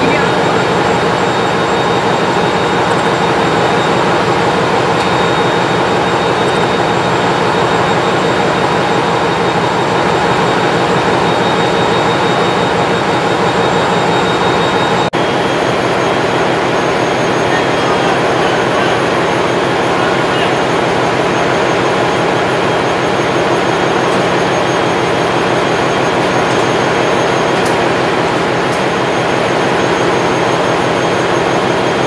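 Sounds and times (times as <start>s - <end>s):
faint high whine: 0.0s - 6.9s
engine room machinery drone: 0.0s - 32.0s.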